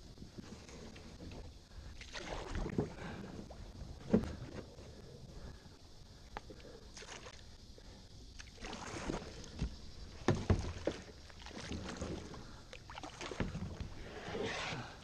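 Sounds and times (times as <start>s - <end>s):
paddle splashing through water: 2.0s - 3.4s, 8.4s - 14.8s.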